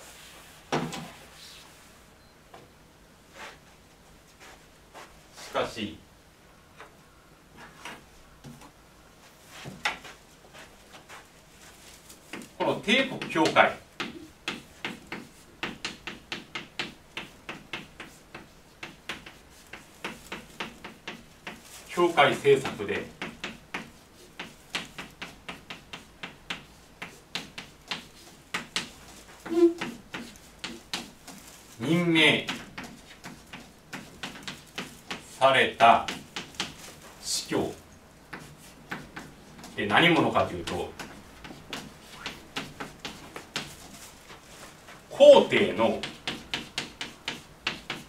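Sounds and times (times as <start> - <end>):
chalk tapping on blackboard: 12.2 - 37.2, 38.3 - 48.0.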